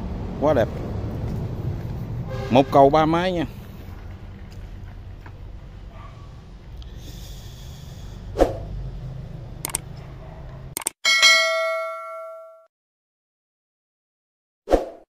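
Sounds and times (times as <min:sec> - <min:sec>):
notification bell ding: 0:11.1 - 0:12.7.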